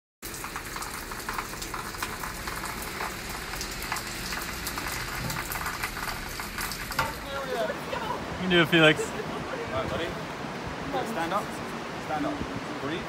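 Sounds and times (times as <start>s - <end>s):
wet snow pattering: 0.2s - 9.3s.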